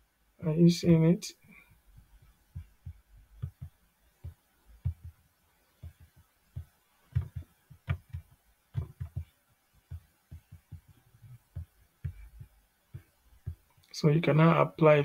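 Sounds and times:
computer mouse clicking: 0:07.1 - 0:12.4.

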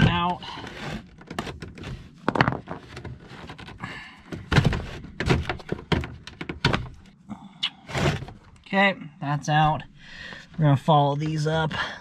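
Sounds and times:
knocks and clunks: 0:00.0 - 0:07.1.

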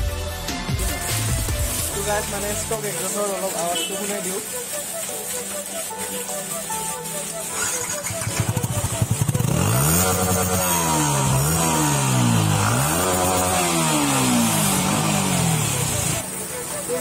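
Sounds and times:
motorcycle engine revving: 0:07.2 - 0:16.3
motorcycle engine cranking: 0:07.5 - 0:16.2.

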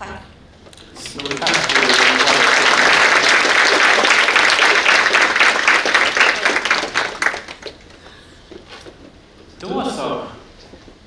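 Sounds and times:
audience applauding: 0:01.0 - 0:08.1.

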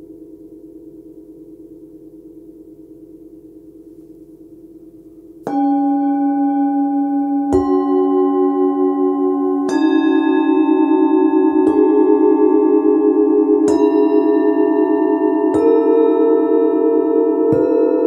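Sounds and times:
singing bowls struck with mallet: 0:05.4 - 0:18.0.

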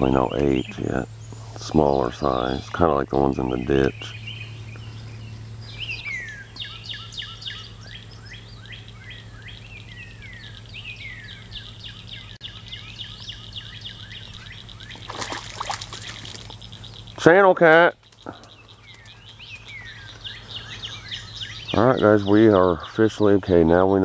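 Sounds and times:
birds chirping: 0:00.0 - 0:24.0
steady high buzz: 0:00.0 - 0:24.0.

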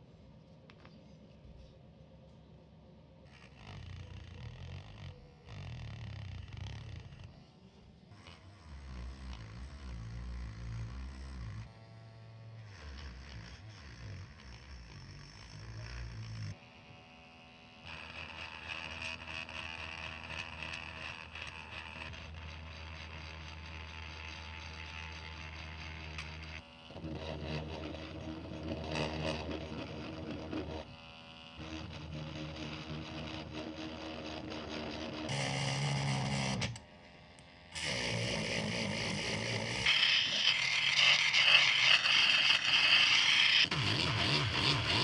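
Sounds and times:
rotary tool grinding metal: 0:03.3 - 0:45.0.

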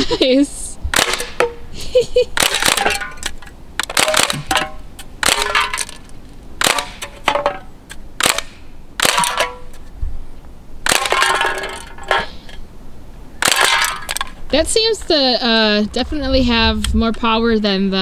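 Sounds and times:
bb gun firing bursts: 0:00.9 - 0:01.6, 0:02.4 - 0:03.0, 0:03.8 - 0:05.9, 0:06.6 - 0:07.4, 0:08.2 - 0:09.7, 0:10.8 - 0:11.6
bbs clinking off metal cans: 0:05.4 - 0:06.0.

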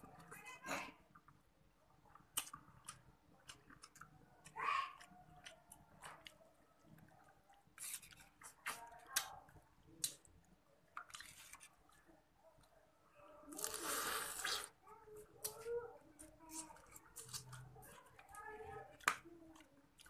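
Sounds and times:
person chewing and lip-smacking: 0:02.1 - 0:06.4.

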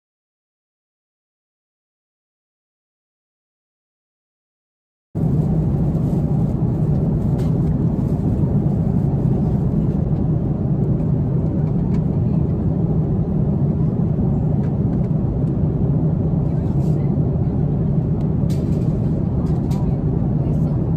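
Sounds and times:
airliner cabin hum: 0:05.2 - 0:20.9.

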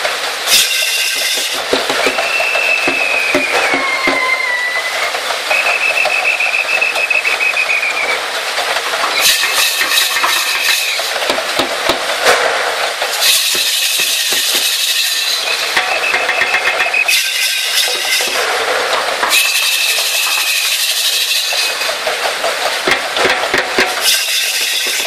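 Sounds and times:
high steady tone: 0:15.8 - 0:17.3.

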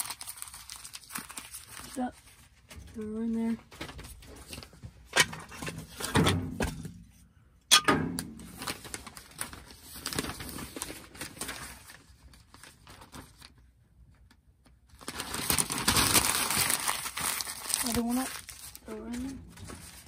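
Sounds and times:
sharp paper crunch: 0:00.0 - 0:02.6, 0:08.4 - 0:13.6, 0:14.9 - 0:20.0
paper crumpling and rustling: 0:00.0 - 0:06.0, 0:08.4 - 0:20.0.

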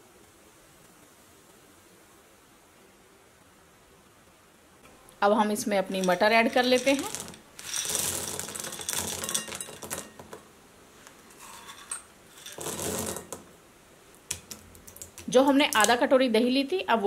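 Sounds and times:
frozen peas poured into bowl: 0:05.8 - 0:10.1.

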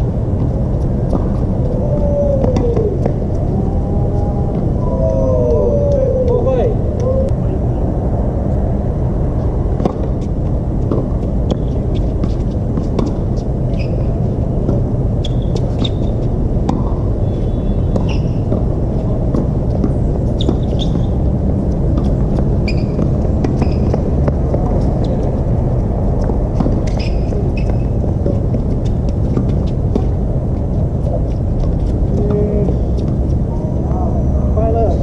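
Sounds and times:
steady low rumble: 0:00.0 - 0:35.0
shoe squeaks: 0:13.7 - 0:14.2, 0:15.2 - 0:16.2, 0:17.2 - 0:18.5, 0:20.3 - 0:21.2, 0:22.6 - 0:24.2, 0:26.8 - 0:28.0
racket hitting tennis ball: 0:26.2 - 0:30.2.

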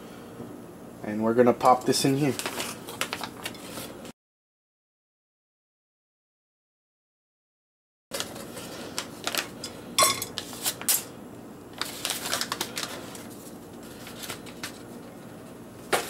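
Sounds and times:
paper bag rustling: 0:01.6 - 0:04.1, 0:08.1 - 0:09.6, 0:11.8 - 0:16.0.

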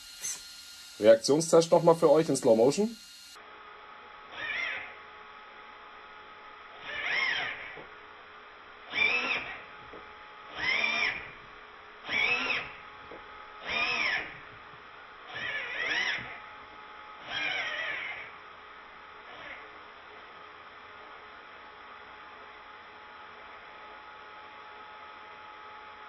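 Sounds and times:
steering servo whining: 0:00.0 - 0:03.4, 0:04.4 - 0:04.9, 0:06.8 - 0:07.9, 0:08.9 - 0:11.4, 0:12.0 - 0:14.5, 0:15.3 - 0:16.4, 0:17.2 - 0:18.4.

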